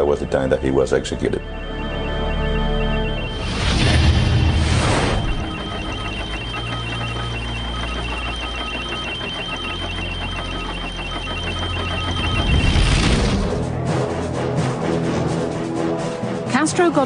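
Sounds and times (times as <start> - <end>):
low steady drone: 0.0 - 17.0
short high electronic beeps: 0.6 - 13.3.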